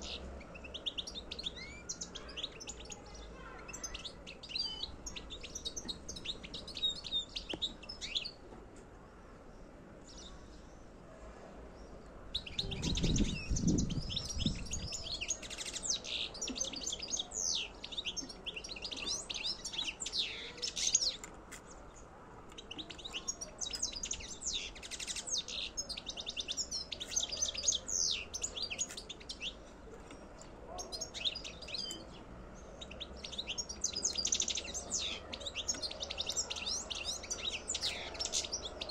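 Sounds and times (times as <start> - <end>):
goldfinch twittering song: 22.6 - 38.9.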